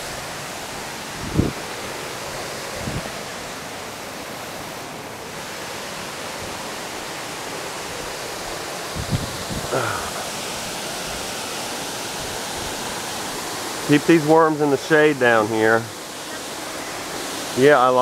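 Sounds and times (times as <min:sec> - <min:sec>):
water rushing over a spillway: 0:00.0 - 0:18.0.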